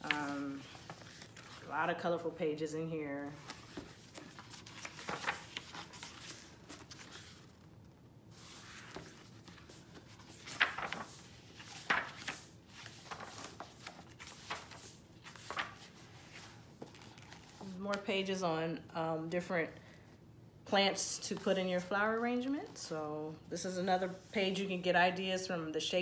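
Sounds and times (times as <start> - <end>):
book pages rustling: 0.0 - 1.8, 3.2 - 18.0.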